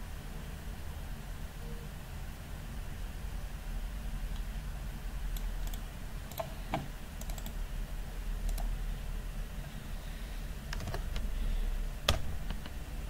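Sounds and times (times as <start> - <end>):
steady low hum: 0.0 - 13.0
computer keyboard keys clicking: 5.3 - 7.6, 8.5 - 8.7, 10.7 - 11.3.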